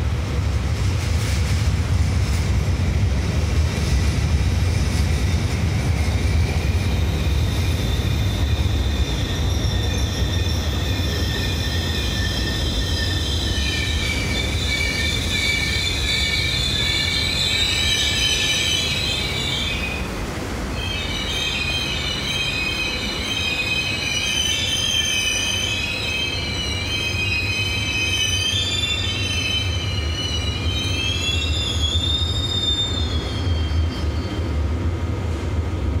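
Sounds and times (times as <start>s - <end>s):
train rumbling: 0.0s - 36.0s
train brakes squealing: 5.6s - 20.1s, 20.7s - 34.8s.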